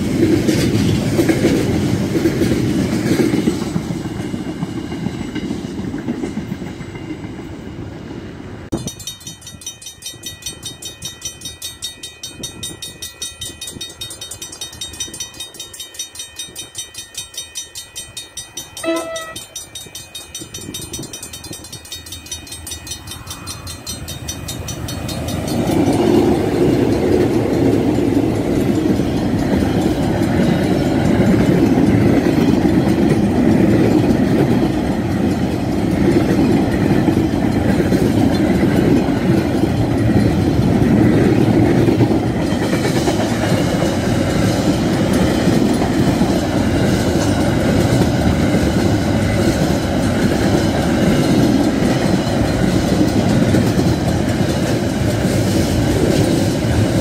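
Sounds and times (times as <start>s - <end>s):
train rumbling over rails: 0.0s - 57.0s
level crossing bell ringing: 9.0s - 28.4s
train horn blast: 18.8s - 19.5s.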